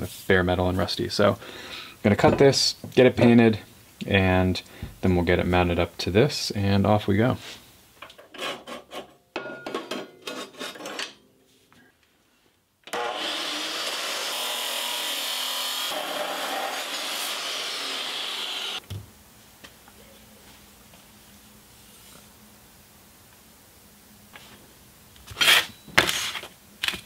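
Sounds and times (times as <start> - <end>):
chop saw cutting steel: 12.9 - 18.8.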